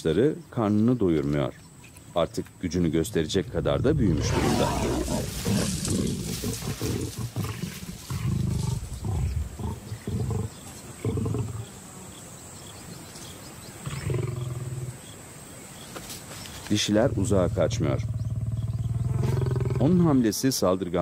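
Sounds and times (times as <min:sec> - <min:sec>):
lions growling: 0:03.0 - 0:11.8, 0:13.8 - 0:15.0, 0:16.8 - 0:20.2.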